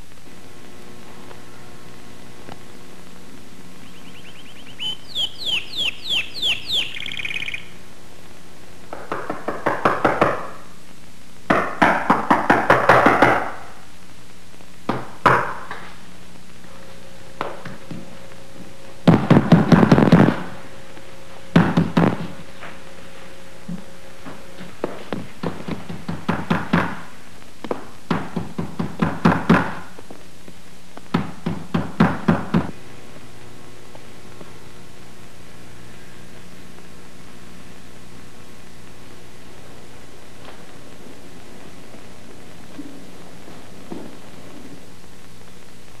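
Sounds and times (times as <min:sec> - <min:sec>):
high falling chirps: 0:03.7 - 0:07.9.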